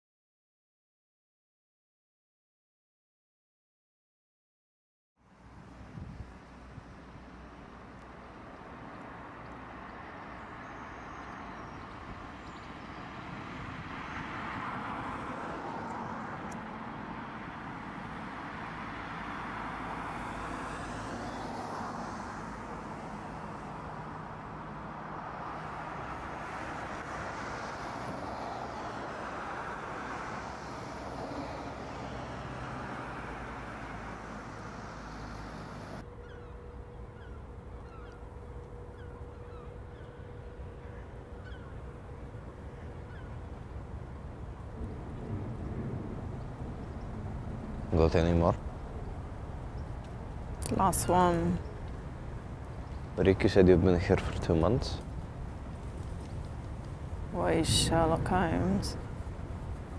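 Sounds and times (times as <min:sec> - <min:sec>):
cars passing: 0:05.2 - 0:59.9
bird calls: 0:35.0 - 0:43.8.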